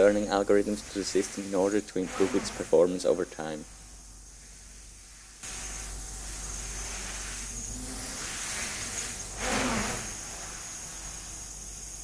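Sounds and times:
high motor whine: 5.4 - 12.0.

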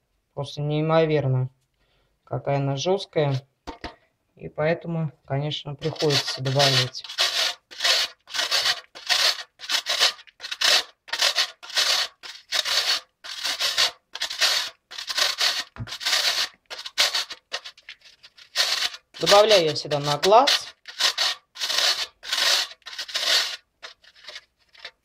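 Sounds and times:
rasping scrape on metal grater: 5.8 - 25.0.

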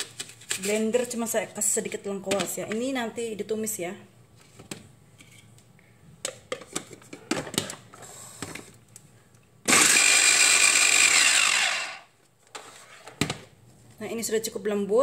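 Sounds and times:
electric chopper motor whining: 9.7 - 12.1.

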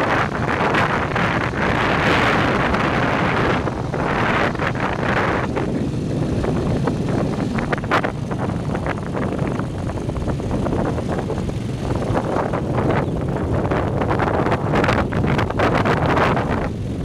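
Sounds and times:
motorbike engine running: 0.0 - 17.0
wind buffeting microphone: 0.0 - 17.0.

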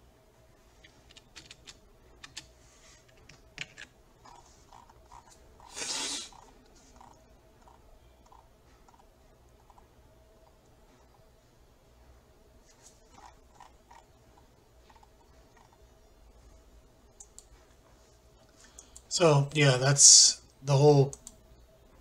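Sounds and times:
computer mouse clicks: 0.8 - 2.5, 6.3 - 9.1, 17.2 - 17.5, 21.1 - 21.4
light scrolling ticks: 17.1 - 17.5, 18.6 - 19.1, 21.0 - 21.4.

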